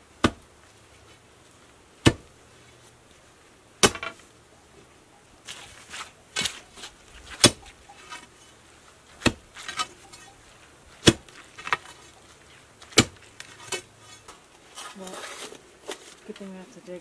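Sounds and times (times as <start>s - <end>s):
digging bar striking frozen ground: 0.2s - 0.5s, 2.0s - 2.3s, 3.8s - 4.2s, 5.4s - 10.3s, 11.0s - 12.1s, 12.8s - 16.0s
bar scraping in dirt: 3.8s - 16.6s.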